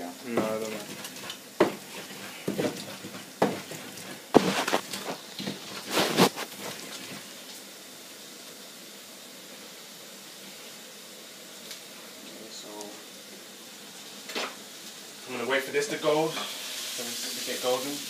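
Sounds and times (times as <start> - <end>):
low room noise: 0.0 - 18.0
pestle scraping in bowl: 0.4 - 7.2.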